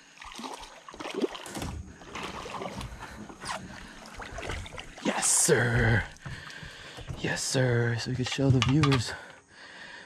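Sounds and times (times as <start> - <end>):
water splashing: 0.0 - 8.7.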